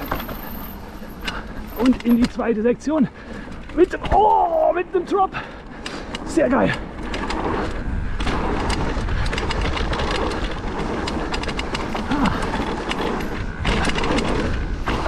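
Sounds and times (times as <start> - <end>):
bike clicking and rattling: 0.0 - 15.0
bike tyres rumbling on dirt: 0.0 - 15.0.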